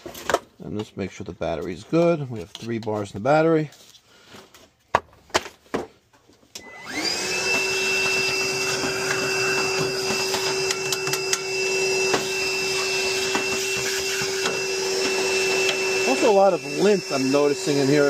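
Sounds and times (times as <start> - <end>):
cordless vacuum whining: 6.5 - 18.0.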